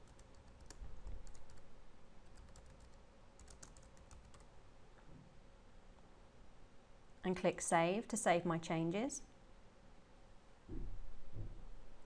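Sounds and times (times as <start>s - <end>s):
faint computer keyboard typing: 0.0s - 4.5s.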